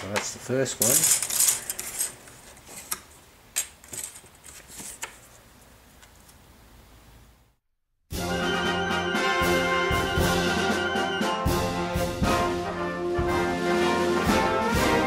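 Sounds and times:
plastic parts clicking and clattering: 0.0s - 5.2s.

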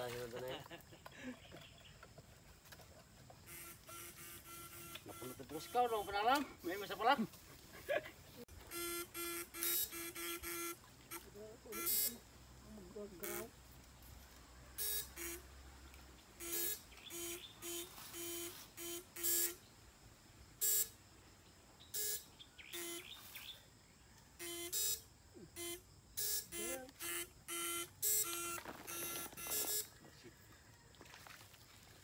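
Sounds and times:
electric buzz bursts: 3.4s - 7.0s, 8.5s - 12.3s, 13.1s - 13.6s, 14.8s - 15.6s, 16.3s - 19.7s, 20.6s - 21.0s, 21.9s - 23.2s, 24.4s - 29.9s.

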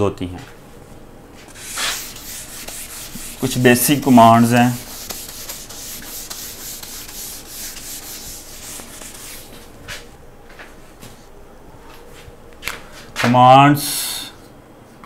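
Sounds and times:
eraser rubbing on whiteboard: 1.5s - 9.6s.

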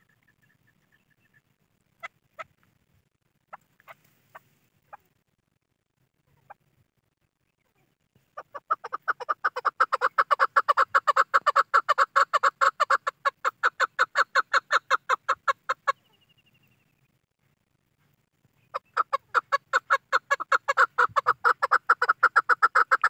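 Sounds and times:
partridge rapid clucking: 8.4s - 16.0s, 18.7s - 23.0s.

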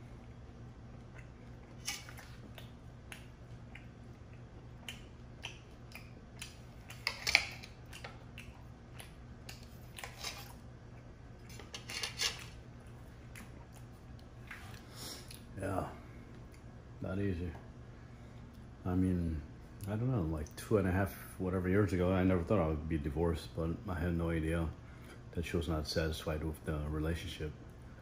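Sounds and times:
knife and fork scraping a plate: 10.0s - 10.6s, 11.5s - 12.6s.

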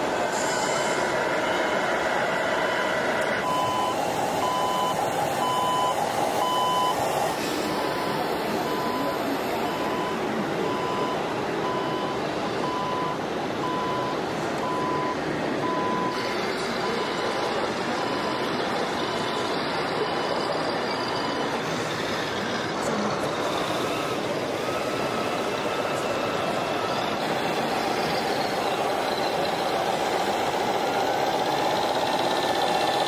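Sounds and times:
noisy background: 0.0s - 33.0s
reversing warning beeps: 0.4s - 33.0s.

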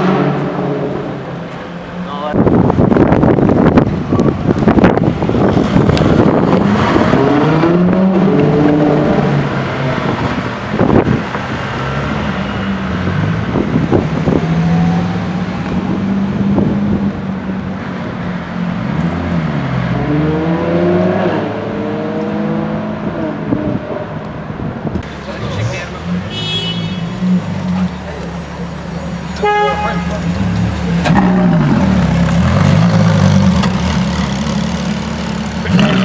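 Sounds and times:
sports car engine passing: 4.8s - 26.3s.

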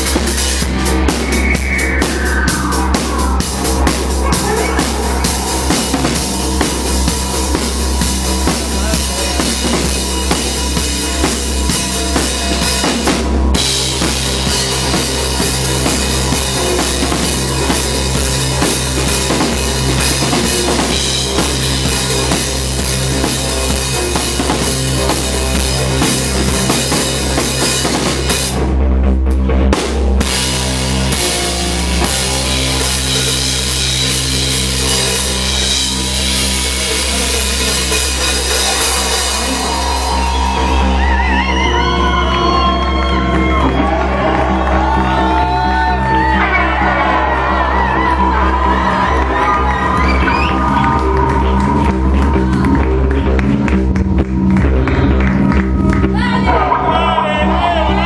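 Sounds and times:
drum kit with cymbals: 0.0s - 28.8s, 29.5s - 41.4s
live rock band playing: 0.0s - 58.0s.

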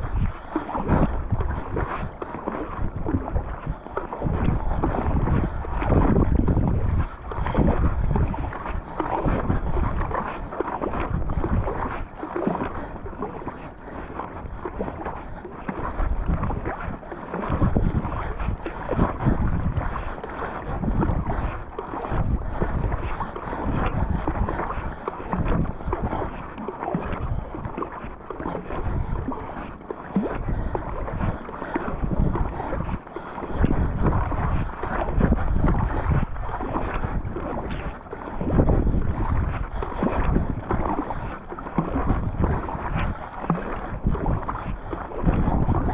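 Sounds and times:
paddle splashing in water: 0.0s - 45.9s
water rushing along hull: 0.0s - 45.9s
wind buffeting microphone: 0.0s - 45.9s.

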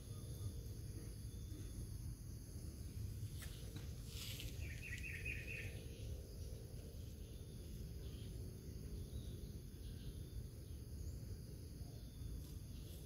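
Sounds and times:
high chirping: 4.4s - 6.2s.

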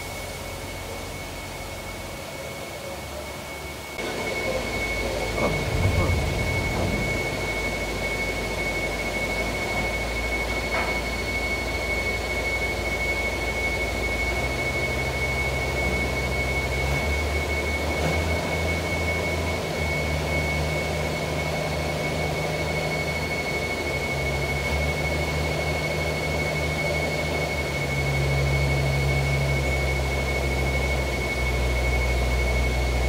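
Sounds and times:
crane engine running: 0.0s - 33.0s
steady high whine: 0.0s - 33.0s.

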